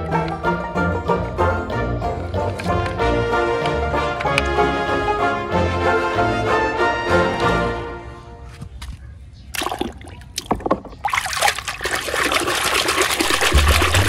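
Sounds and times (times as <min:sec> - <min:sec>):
water splashing in plastic basin: 0:09.5 - 0:14.0.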